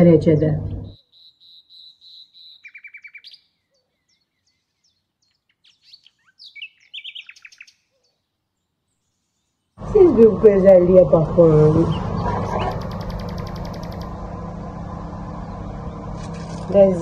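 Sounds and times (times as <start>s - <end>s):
small bird chirping: 0.7s - 9.7s, 11.9s - 14.2s.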